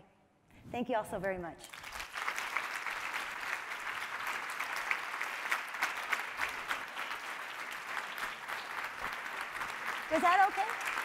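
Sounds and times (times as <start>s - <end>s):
audience applauding: 1.7s - 11.0s.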